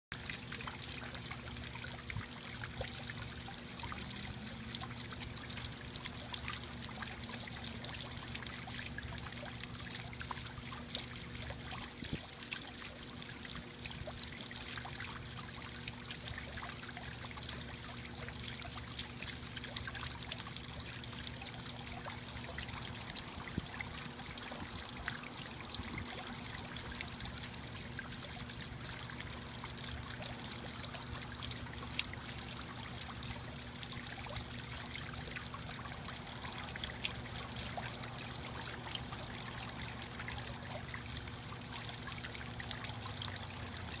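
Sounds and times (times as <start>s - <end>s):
fountain water splashing: 0.1s - 44.0s
faint low hum: 0.2s - 14.0s.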